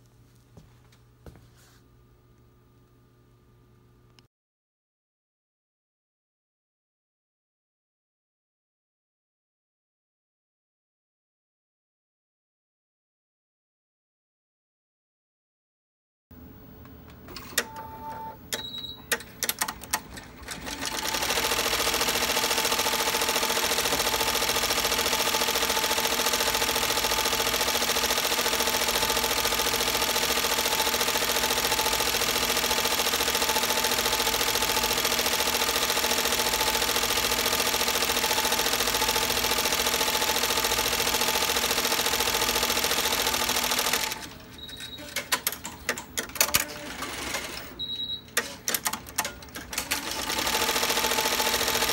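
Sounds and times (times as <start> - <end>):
machine clicks: 18.5 - 51.9
embroidery machine stitching: 19.1 - 47.8, 48.4 - 51.9
short high beep: 47.8 - 48.3.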